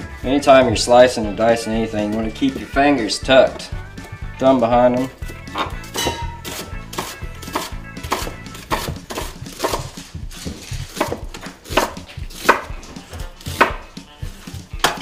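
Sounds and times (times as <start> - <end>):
knife slicing onion on board: 5.3 - 15.0.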